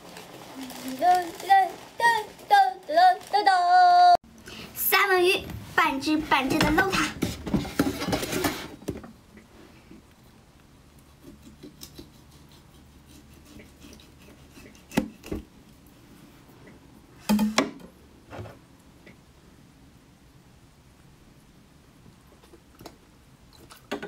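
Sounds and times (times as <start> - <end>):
tableware rustling: 6.2 - 8.8.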